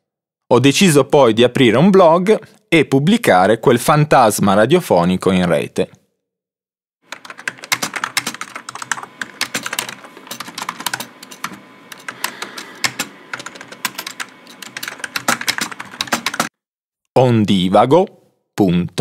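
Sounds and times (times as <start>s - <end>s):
typing on computer keyboard: 7.1s - 16.5s.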